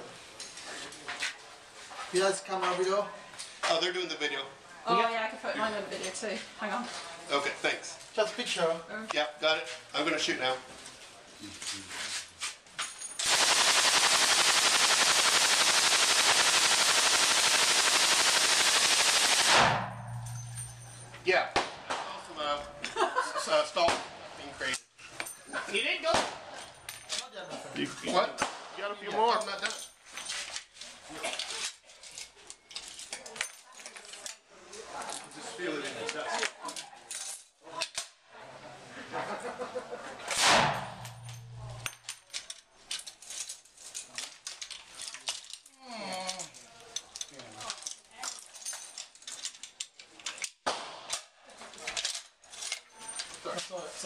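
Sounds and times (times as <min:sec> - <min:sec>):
machine gun automatic fire: 0:13.2 - 0:20.3
gunshot bang: 0:16.3 - 0:22.1, 0:40.3 - 0:41.8
small metallic clinks: 0:19.9 - 0:21.3, 0:26.6 - 0:27.6, 0:31.3 - 0:34.4, 0:36.6 - 0:37.5, 0:40.8 - 0:50.6
low hum: 0:40.8 - 0:42.0.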